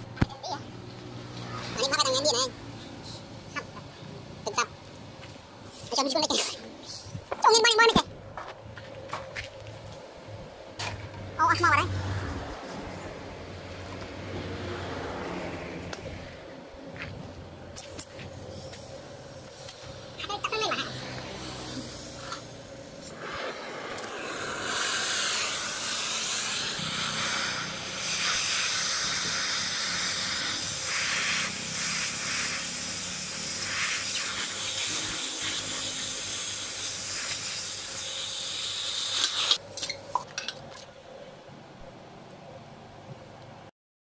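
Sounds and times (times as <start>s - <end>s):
cutting torch hissing: 17.8s - 39.6s.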